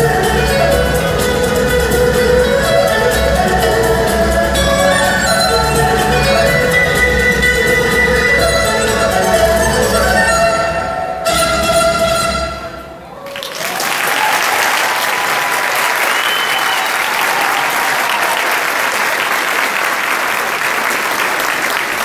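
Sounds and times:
audience applauding: 13.2 - 22.0.

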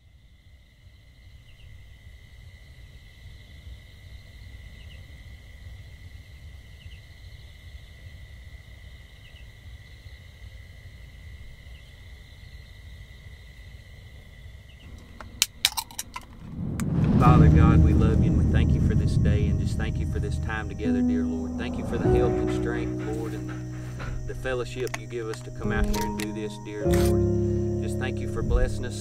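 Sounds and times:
insect chirps: 0.0 - 29.0
insects droning: 0.0 - 29.0
low background rumble: 14.9 - 29.0.

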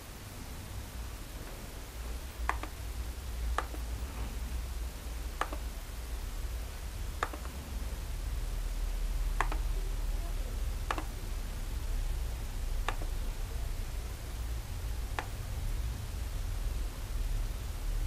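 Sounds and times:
steady low hum: 0.0 - 18.0
computer mouse clicks: 2.4 - 2.8, 3.5 - 3.9, 5.4 - 5.7, 7.2 - 7.6, 9.4 - 9.8, 10.8 - 11.2, 12.8 - 13.2, 15.1 - 15.4.

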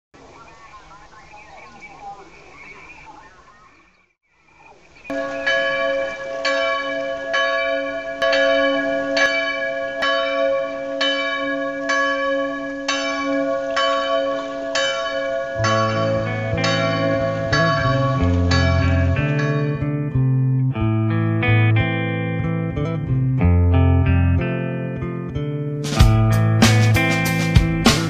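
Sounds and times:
church bell tolling: 5.1 - 20.4
bass-heavy guitar music: 15.6 - 28.0.

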